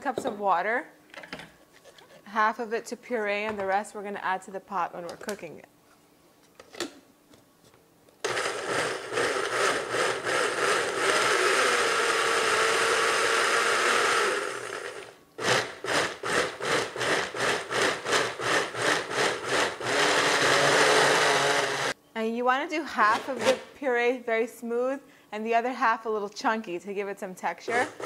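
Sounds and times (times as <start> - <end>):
blender pureeing: 8.2 - 22.0, 27.7 - 28.0.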